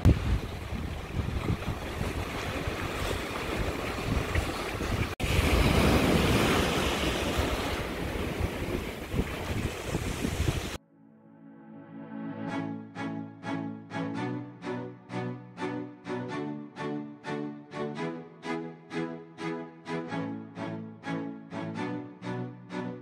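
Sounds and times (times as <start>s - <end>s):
sea waves breaking on rocks: 0.0s - 10.8s
wind buffeting microphone: 0.0s - 10.8s.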